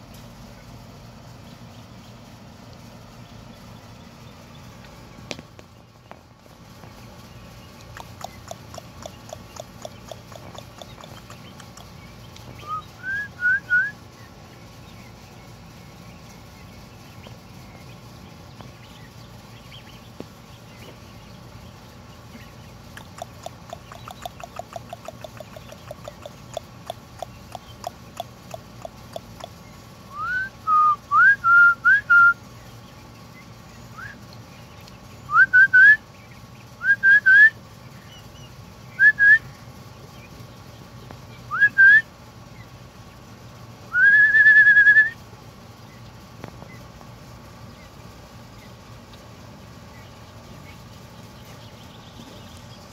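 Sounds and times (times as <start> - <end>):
turkey poults peeping: 3.2 - 30.4.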